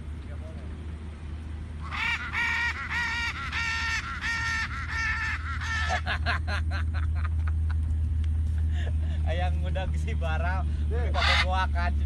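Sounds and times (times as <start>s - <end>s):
macaws chattering: 1.8s - 6.0s, 11.0s - 11.7s
macaws squawking: 1.8s - 6.1s, 11.0s - 11.7s.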